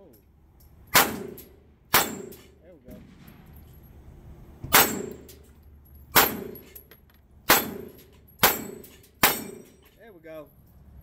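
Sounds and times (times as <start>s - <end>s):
pistol shots: 0.9s - 3.6s, 4.7s - 5.3s, 6.1s - 6.7s, 7.5s - 9.7s
steel target clanging: 0.9s - 3.9s, 4.7s - 6.9s, 7.5s - 10.0s.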